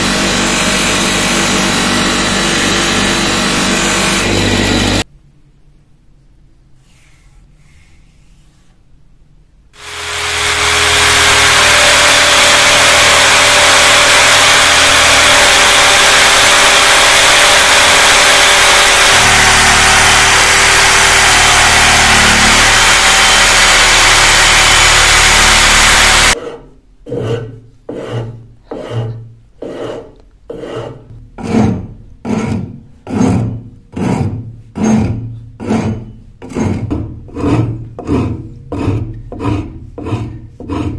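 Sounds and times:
power tool running: 0.0 - 5.0, 9.8 - 26.4
hand filing strokes: 9.8 - 40.9.

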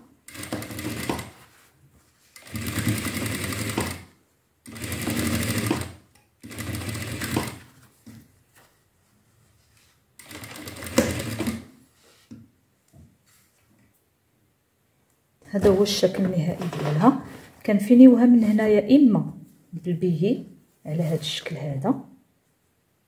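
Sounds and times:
sewing machine stitching: 0.2 - 1.4, 2.4 - 7.7, 10.2 - 11.7.

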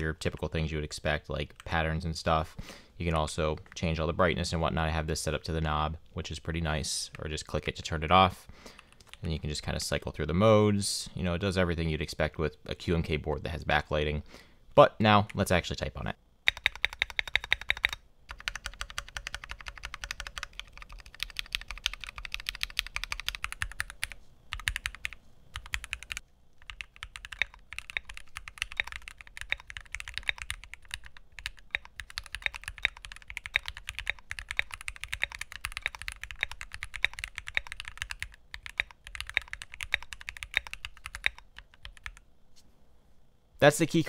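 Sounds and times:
mechanical keyboard typing: 16.5 - 42.2.

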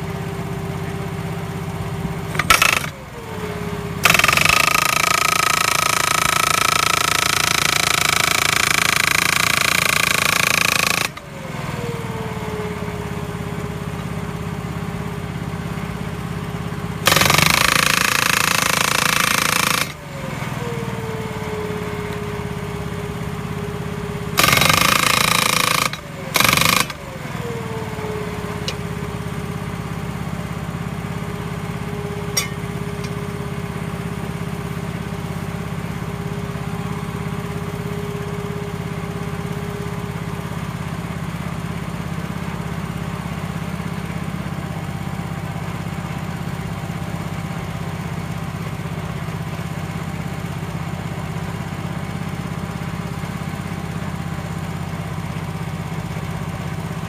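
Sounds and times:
post driver hammering wooden post: 2.3 - 3.0, 4.0 - 11.2, 17.1 - 20.0, 24.4 - 27.0.

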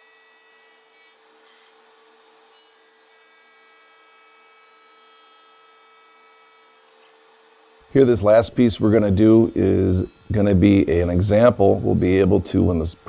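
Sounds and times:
faint steady hum: 7.8 - 13.0.

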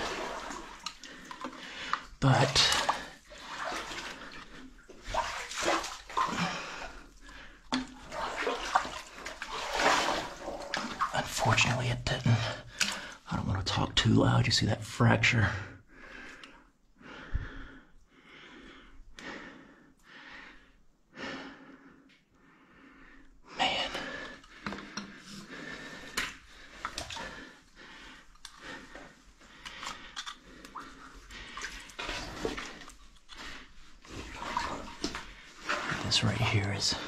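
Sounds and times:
person breathing hard: 15.9 - 32.0.

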